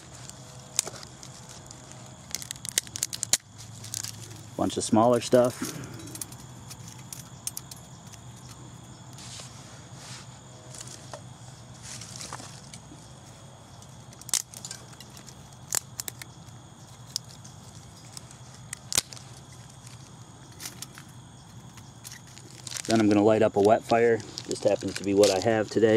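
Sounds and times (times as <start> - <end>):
twigs rustling and scraping: 0.0 - 25.9
sticks snapping: 1.6 - 4.2, 14.1 - 16.3, 18.1 - 19.2.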